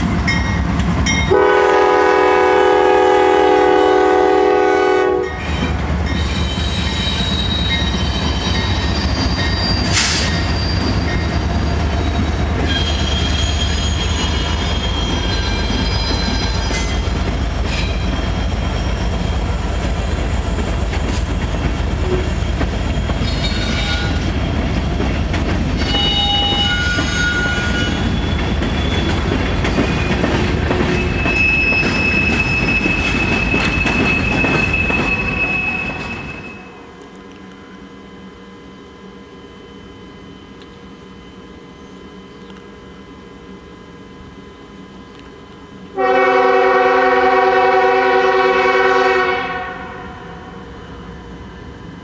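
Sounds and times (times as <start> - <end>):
train rolling rumble: 0.0 - 52.0
locomotive horn chord: 1.3 - 5.4, 46.0 - 50.5
wheels squealing: 5.4 - 20.6, 25.7 - 36.8.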